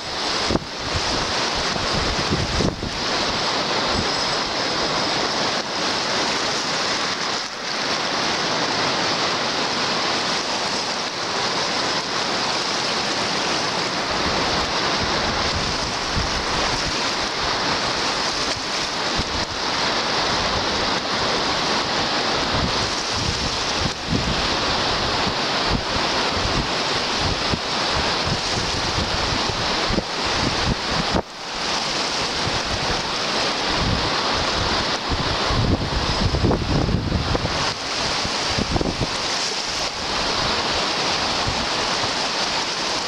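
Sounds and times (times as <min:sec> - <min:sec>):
waves washing up gravel beach: 0:00.0 - 0:43.0
wind noise on microphone: 0:00.0 - 0:43.0.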